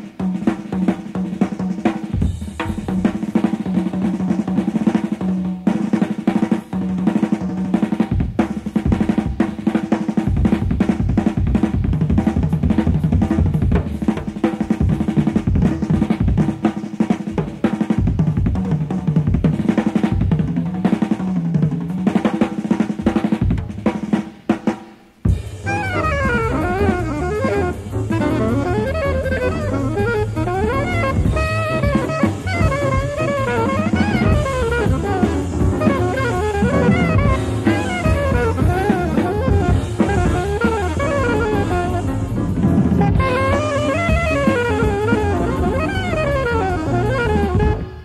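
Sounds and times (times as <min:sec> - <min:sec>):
jazz drum kit playing: 0:00.0 - 0:48.0
held low notes: 0:25.6 - 0:48.0.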